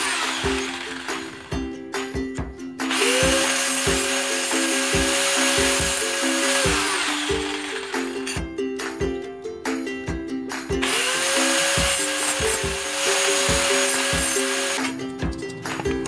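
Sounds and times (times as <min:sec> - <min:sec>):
angle grinder grinding metal: 0:00.0 - 0:01.6, 0:02.8 - 0:08.4, 0:10.8 - 0:16.0
background music with steady beat: 0:00.0 - 0:16.0.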